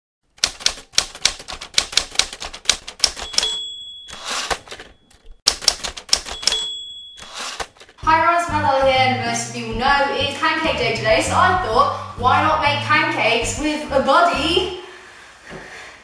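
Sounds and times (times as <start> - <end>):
typewriter key clacks: 0.4 - 4.9, 5.5 - 8.0
typewriter bell ding: 3.0 - 8.0
carriage-return zip: 3.1 - 4.9, 6.1 - 8.0.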